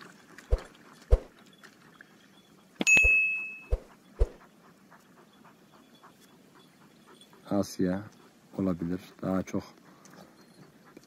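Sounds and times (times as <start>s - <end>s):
bell ding: 2.8s - 3.7s.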